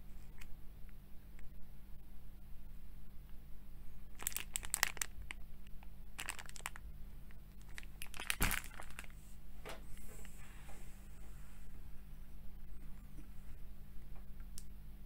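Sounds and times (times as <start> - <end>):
plastic wrapper crinkling: 4.1 - 5.4, 6.2 - 6.9, 7.5 - 9.2.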